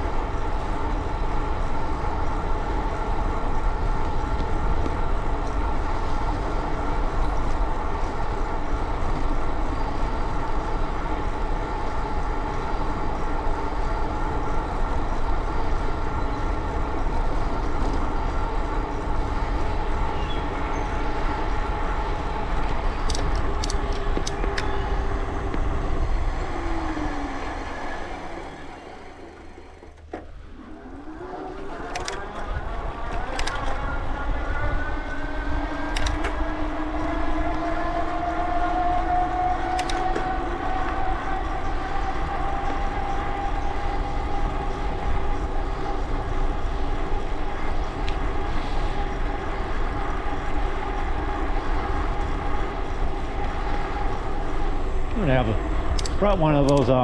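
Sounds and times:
whine of moving bicycle: 0.0 - 56.3
sharp clicks: 23.0 - 24.7, 33.2 - 33.8, 35.9 - 36.4, 39.6 - 40.2, 56.0 - 56.9.

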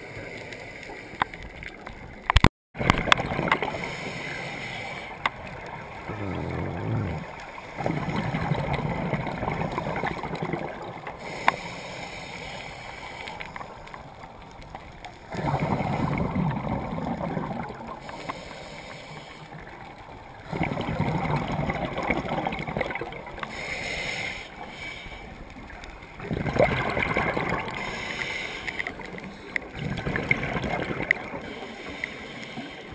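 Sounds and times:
gurgling exhaled bubbles: 2.8 - 4.0, 5.0 - 11.8, 13.4 - 18.4, 19.5 - 23.7, 25.6 - 31.6.

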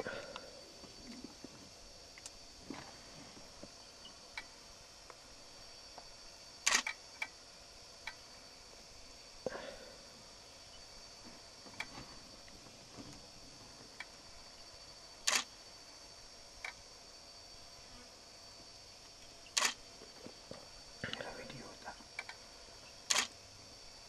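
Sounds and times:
faint steady hiss: 0.0 - 24.0
sharp clicks: 6.6 - 7.3, 15.3 - 15.5, 19.5 - 19.8, 23.1 - 23.4.

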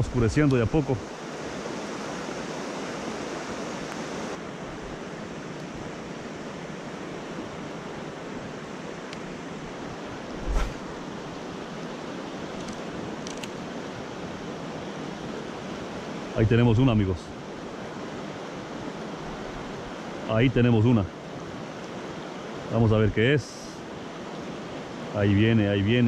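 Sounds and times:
brief thump: 10.4 - 10.8.

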